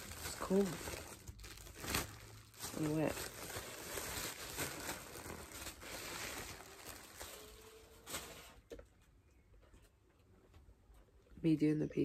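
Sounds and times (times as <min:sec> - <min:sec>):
tissue paper rustling and crinkling: 0:00.0 - 0:08.7.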